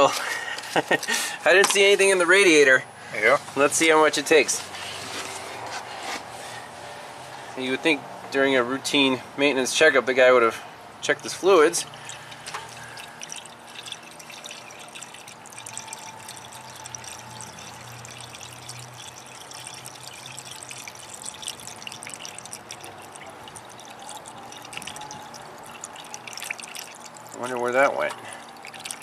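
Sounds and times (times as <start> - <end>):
coolant trickling into radiator: 11.0 - 29.0.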